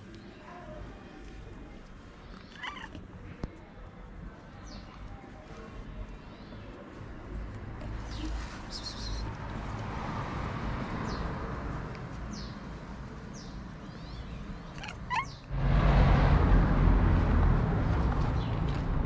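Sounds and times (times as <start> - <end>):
cat meowing: 2.5 - 3.0, 14.7 - 15.4.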